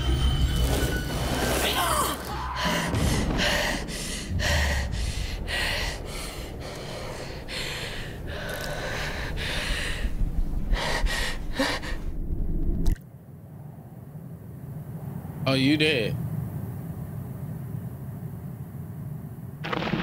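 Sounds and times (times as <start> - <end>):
woman panting and gasping: 2.6 - 12.2.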